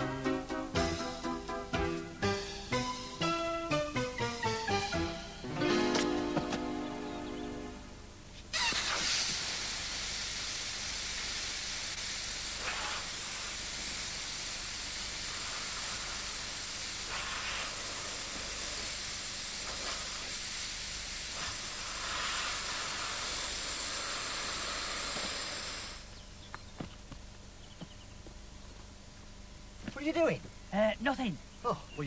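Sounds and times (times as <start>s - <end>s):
air hissing out of a tyre: 8.5s - 26.1s.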